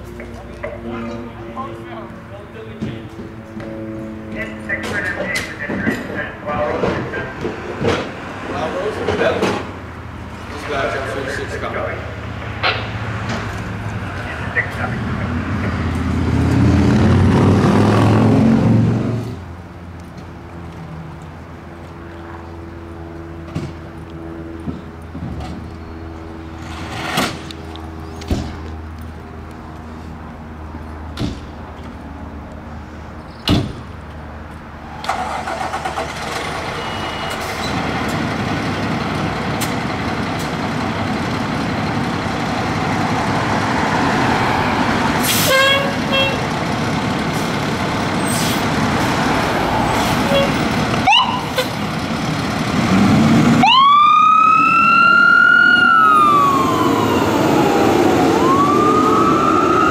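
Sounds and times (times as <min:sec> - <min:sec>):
diesel engine idling with knocks: 0:02.7 - 0:09.8, 0:23.4 - 0:26.0, 0:28.1 - 0:29.2, 0:31.1 - 0:32.0, 0:33.4 - 0:34.0, 0:35.0 - 0:43.4
siren chirps: 0:36.5 - 0:37.6, 0:50.3 - 0:51.6, 0:53.6 - 0:59.9
siren rising wail: 0:43.0 - 0:46.0, 0:48.9 - 0:51.6, 0:53.2 - 0:59.9.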